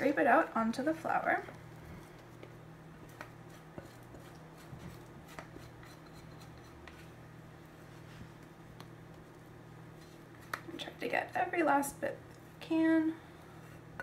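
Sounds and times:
low steady hum: 0:00.0 - 0:14.0
spatula scraping glass bowl: 0:03.5 - 0:07.1.

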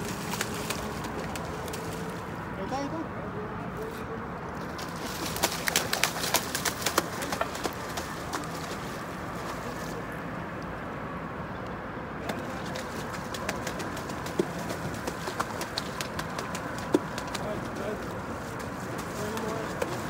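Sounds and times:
fish splashing in water: 0:00.0 - 0:02.5, 0:04.6 - 0:10.3, 0:12.2 - 0:20.0.

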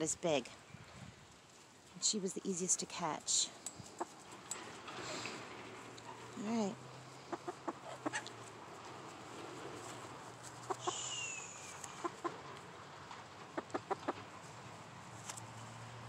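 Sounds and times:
hens clucking: 0:03.8 - 0:06.3, 0:07.2 - 0:12.6, 0:13.2 - 0:14.4.

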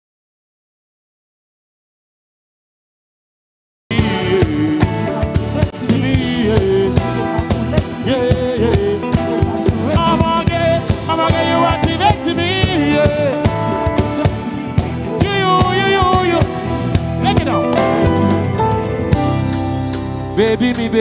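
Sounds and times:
man singing: 0:03.9 - 0:18.6, 0:20.2 - 0:21.0
live music with steady beat: 0:03.9 - 0:21.0.

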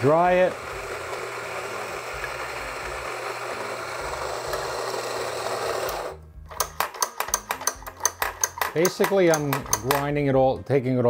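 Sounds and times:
coffee grinder motor grinding: 0:00.0 - 0:07.8
doser lever clacks: 0:06.5 - 0:10.1.

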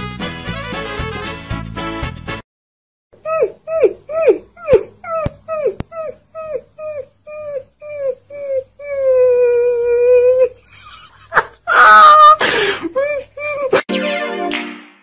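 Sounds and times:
puppy howling and yelping: 0:03.2 - 0:10.6.

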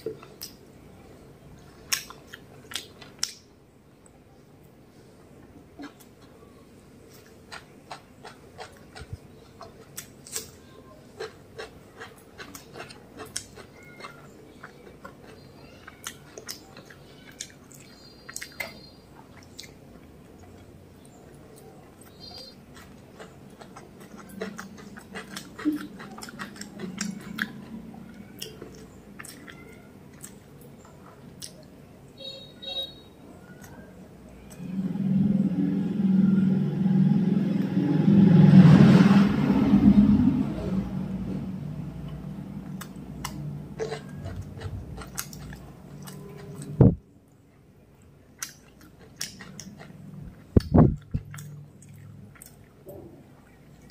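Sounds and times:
wet mouth chewing smacks: 0:22.0 - 0:27.7, 0:42.0 - 0:46.8, 0:48.4 - 0:53.9
low murmur: 0:33.3 - 0:48.0.

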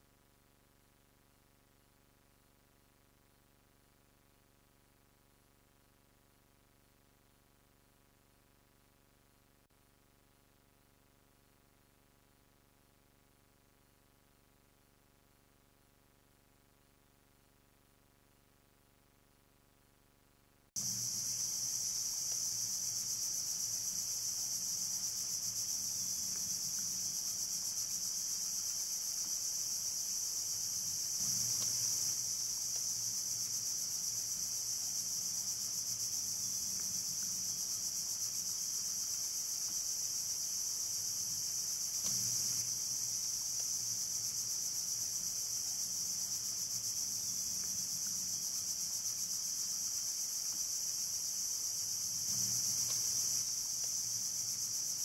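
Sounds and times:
insect chorus drone: 0:20.8 - 0:55.0.

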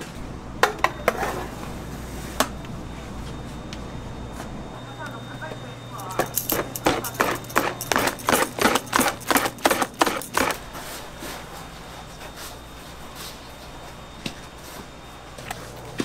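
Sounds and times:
kitchen background: 0:00.0 - 0:03.6, 0:04.3 - 0:13.7
whisk beating batter in bowl: 0:06.8 - 0:10.6.

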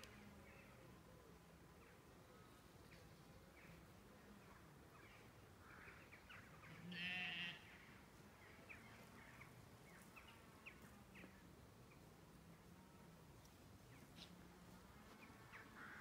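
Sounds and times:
sheep bleating: 0:06.9 - 0:07.7.

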